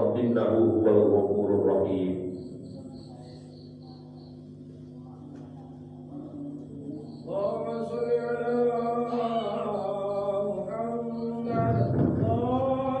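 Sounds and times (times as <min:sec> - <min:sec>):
man chanting: 0:00.0 - 0:02.5, 0:07.1 - 0:13.0.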